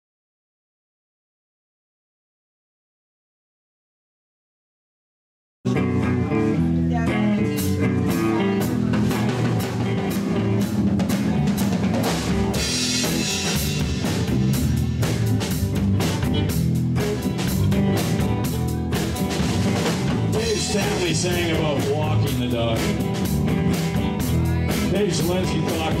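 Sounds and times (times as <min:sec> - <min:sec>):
bass guitar: 0:05.7 - 0:26.0
drum kit beat: 0:05.7 - 0:26.0
electric guitar: 0:05.7 - 0:26.0.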